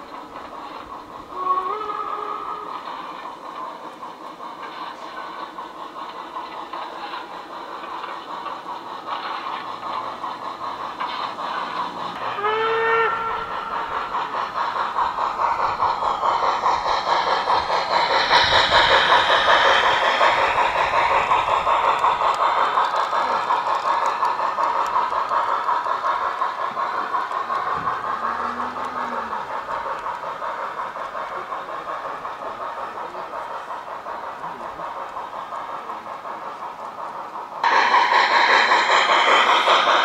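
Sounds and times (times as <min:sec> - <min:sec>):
model train wheels clattering: 0:00.0 - 0:40.0.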